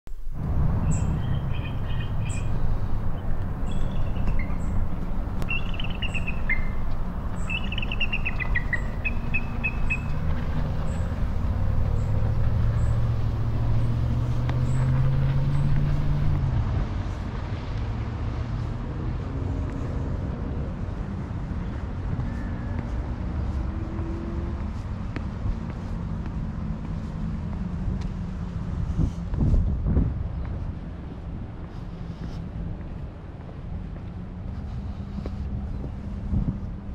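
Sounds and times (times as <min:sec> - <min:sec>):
small birds chirping: 0:00.8 - 0:16.4.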